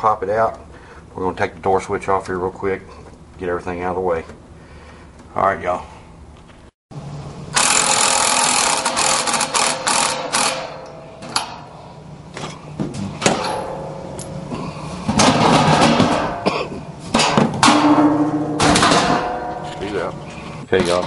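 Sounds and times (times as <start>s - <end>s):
cordless driver spinning: 7.6s - 10.7s.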